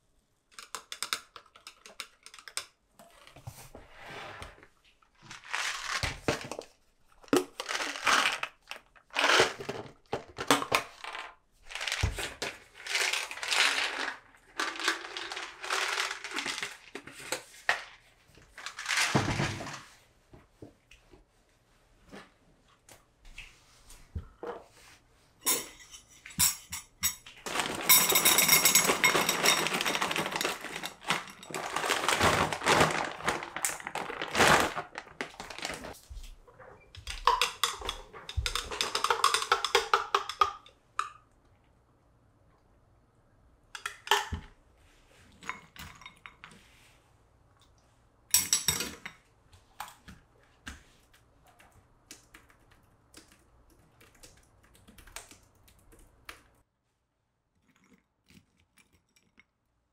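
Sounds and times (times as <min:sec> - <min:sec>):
frozen berries poured into bowl: 0:11.1 - 0:16.9, 0:27.5 - 0:36.0.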